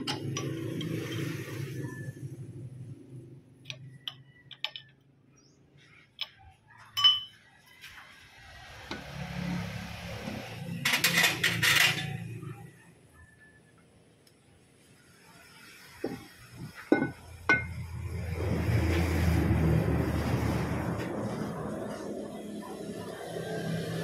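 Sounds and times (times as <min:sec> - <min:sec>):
metal clinks and taps: 0:00.0 - 0:01.4, 0:03.6 - 0:05.1, 0:06.2 - 0:07.5.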